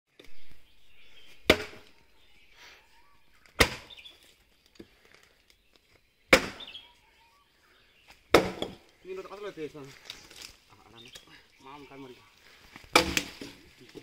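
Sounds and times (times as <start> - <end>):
axe chopping wooden log: 1.4 - 1.9, 3.5 - 4.0, 6.3 - 6.7, 8.3 - 8.8, 12.9 - 13.5.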